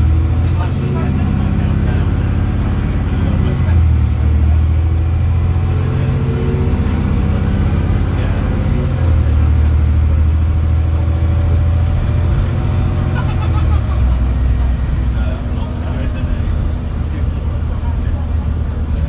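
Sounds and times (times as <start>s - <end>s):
bus diesel engine drone: 0.0s - 19.0s.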